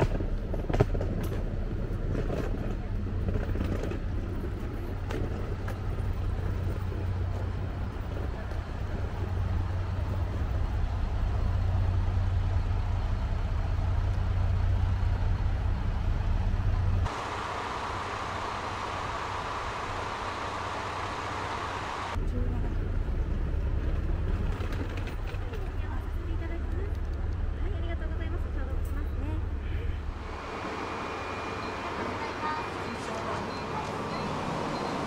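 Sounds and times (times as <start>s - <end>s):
diesel railcar engine humming: 0.0s - 35.0s
higher steady hiss: 17.0s - 22.2s.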